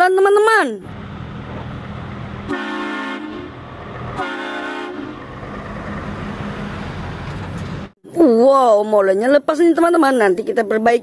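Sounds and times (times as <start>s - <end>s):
diesel engine running: 0.8s - 8.0s
truck air horn blasts: 2.5s - 3.6s, 4.2s - 5.2s.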